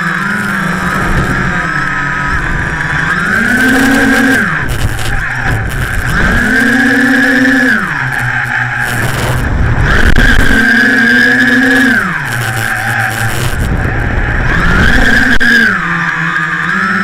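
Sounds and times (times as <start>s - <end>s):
drone motors and propellers whining: 0.0s - 17.0s
air rumbling on microphone: 0.4s - 10.8s, 13.2s - 15.4s.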